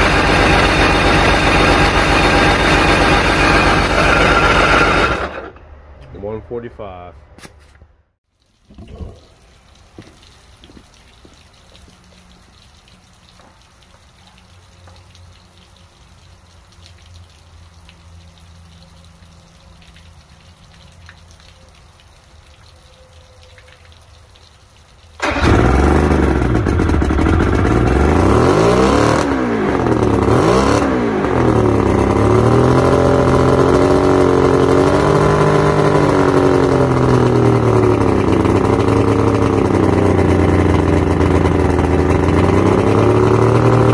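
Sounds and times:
outboard motor revving: 0.0s - 5.6s, 25.2s - 43.9s
faint water splashing: 8.3s - 26.6s.

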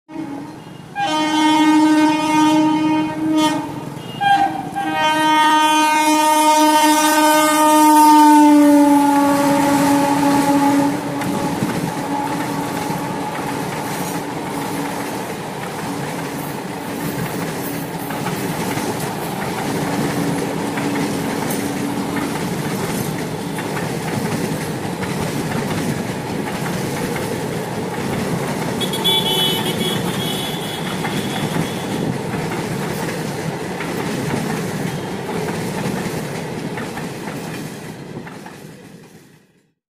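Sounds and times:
locomotive horn blasts: 0.1s - 14.2s, 28.8s - 32.1s
train coaches clattering over rails: 8.4s - 39.6s.

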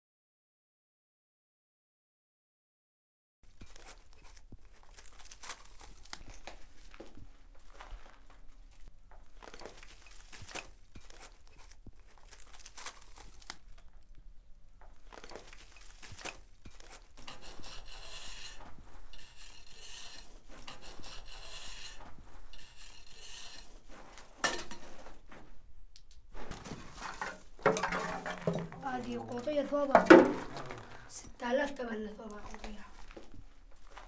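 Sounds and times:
footsteps through rubble: 26.3s - 34.0s
debris crunching and clinking: 26.8s - 31.1s.

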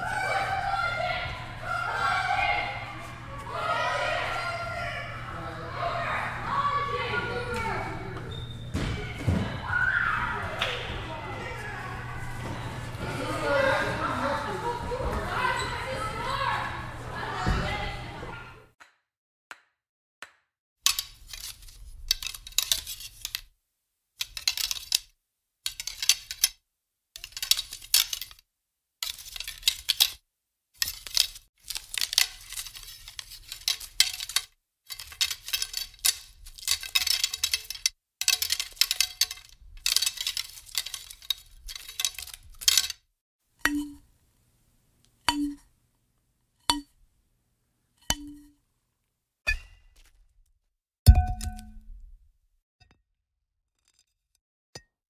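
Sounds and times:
metal arrows clattering: 20.9s - 23.5s, 24.2s - 25.1s, 27.2s - 28.4s, 29.0s - 30.2s, 30.8s - 43.0s, 43.6s - 44.0s, 45.3s - 45.6s, 48.0s - 48.5s.

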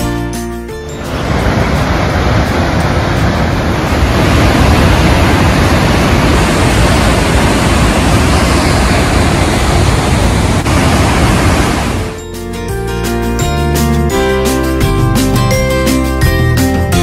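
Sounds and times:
river rushing through gorge: 1.0s - 12.1s.

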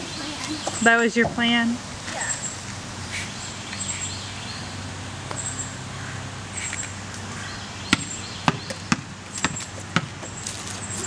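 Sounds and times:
basketball bouncing on concrete: 7.9s - 10.4s.

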